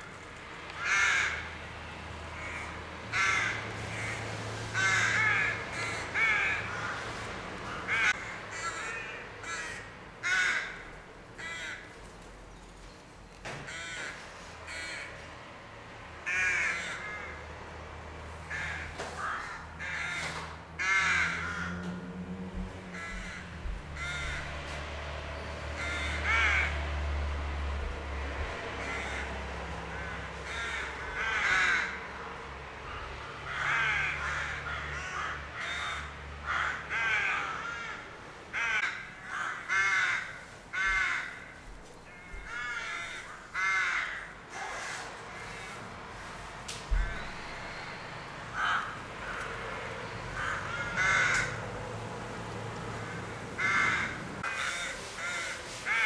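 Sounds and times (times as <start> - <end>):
rooks cawing: 0.0 - 12.0, 13.5 - 15.3, 16.2 - 17.5, 18.4 - 22.0, 22.8 - 24.8, 25.5 - 56.0
low steady rumble: 21.1 - 33.0.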